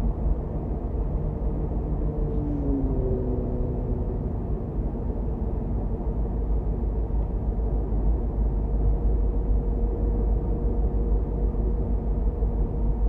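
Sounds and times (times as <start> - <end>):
car engine and road noise: 0.0 - 13.0
faint constant hum: 0.0 - 13.0.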